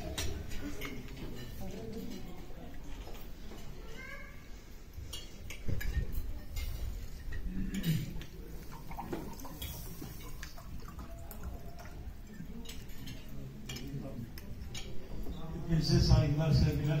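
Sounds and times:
cutlery and dishes clinking: 0:00.0 - 0:03.9, 0:04.5 - 0:17.0.

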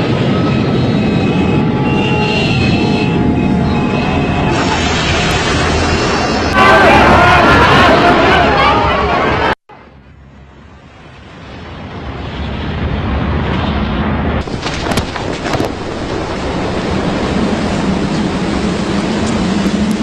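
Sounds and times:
sharp crackles: 0:14.4 - 0:17.3.

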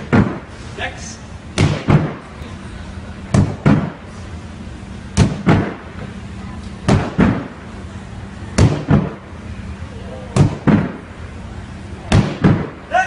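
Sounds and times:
wooden board thudding: 0:00.0 - 0:00.4, 0:01.6 - 0:02.2, 0:03.3 - 0:04.0, 0:08.6 - 0:09.2, 0:10.4 - 0:11.0, 0:12.1 - 0:12.8.

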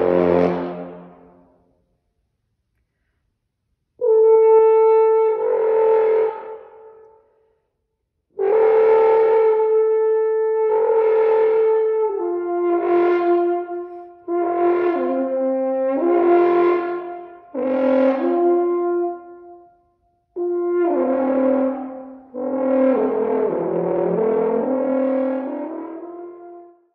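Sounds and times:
french horn sustained notes: 0:00.0 - 0:01.5.

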